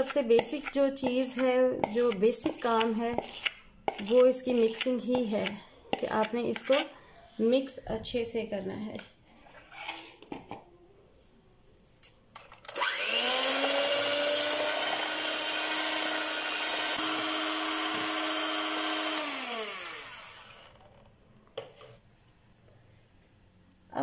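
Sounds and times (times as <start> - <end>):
electric hand mixer whining: 12.7 - 20.8.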